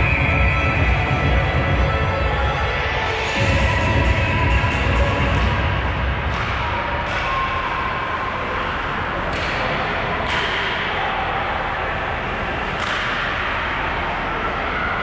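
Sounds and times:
arena noise: 0.0s - 15.0s
skates and sticks scraping and clacking: 8.5s - 11.0s, 12.2s - 14.2s.

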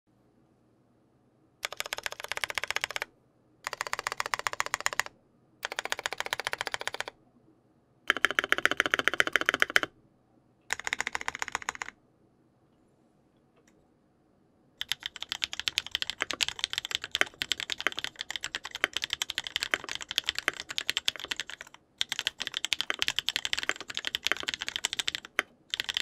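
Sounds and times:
mechanical keyboard typing: 1.6s - 7.1s, 8.1s - 9.9s, 10.7s - 12.0s, 14.8s - 26.0s.

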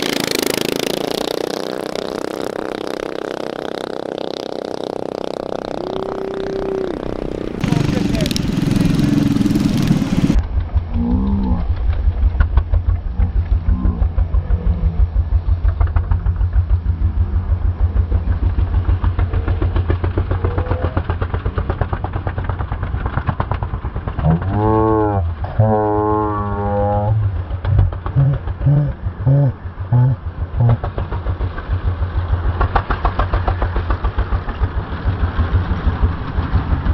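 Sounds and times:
small engine running and revving: 0.0s - 25.7s, 26.6s - 36.9s.

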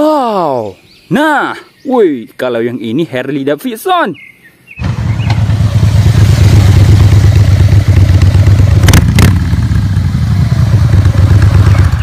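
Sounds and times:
motorcycle engine rumbling: 4.7s - 12.0s.

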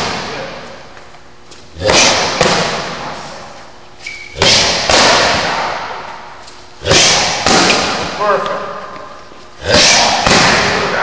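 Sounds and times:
strikes smacking a pad: 1.8s - 3.0s, 4.4s - 5.9s, 6.8s - 8.1s, 9.7s - 10.9s.

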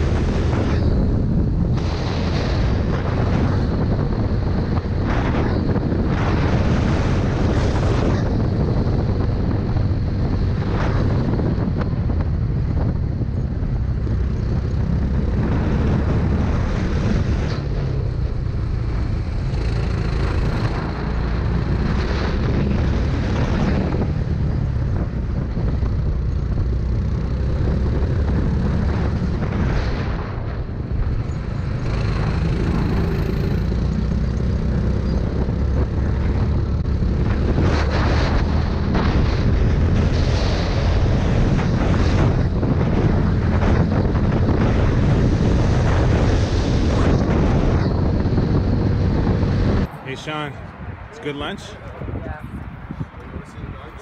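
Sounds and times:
kart engine running: 8.4s - 29.6s, 30.3s - 49.9s.

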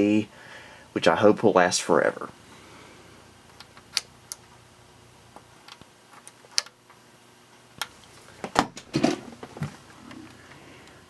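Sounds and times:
knocks and rustling from handling: 8.2s - 10.3s.

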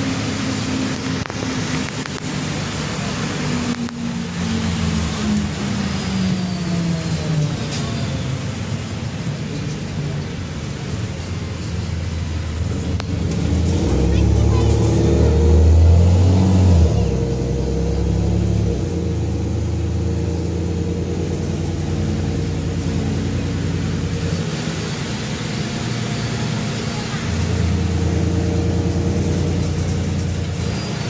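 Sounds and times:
rain and wet road hiss: 0.0s - 6.6s, 21.2s - 31.0s
bus diesel engine pulling: 0.0s - 31.0s.

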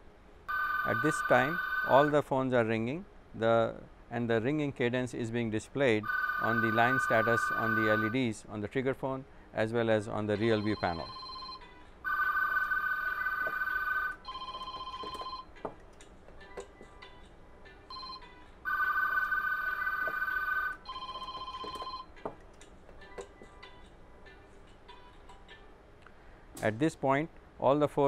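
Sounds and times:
phones ringing: 0.5s - 2.2s, 6.0s - 8.2s, 10.4s - 15.6s, 17.9s - 22.2s.

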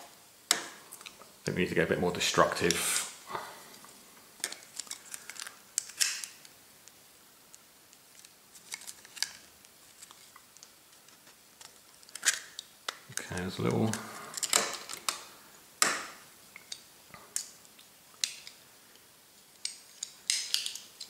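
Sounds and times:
plastic parts clicking and tapping: 19.6s - 21.0s.

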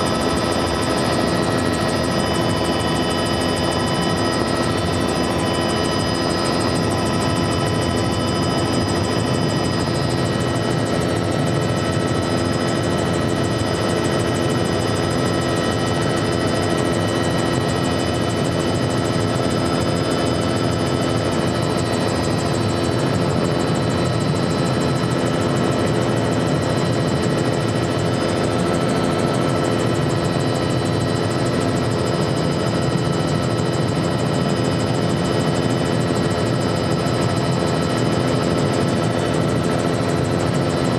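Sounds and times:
steady whining tones: 0.0s - 20.8s
helicopter engine and rotors drone: 0.0s - 40.9s.

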